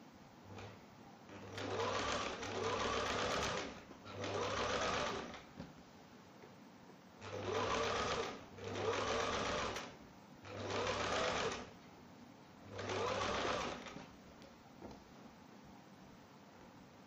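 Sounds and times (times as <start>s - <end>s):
sewing machine stitching: 0.5s - 5.5s, 7.2s - 11.8s, 12.7s - 14.2s.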